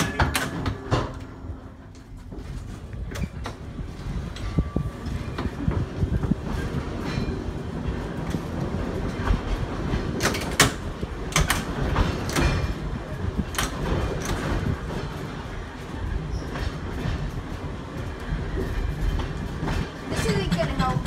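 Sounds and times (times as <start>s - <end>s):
trolley car wheels rumbling: 0.0s - 21.0s
sharp wheel clacks: 19.1s - 21.0s.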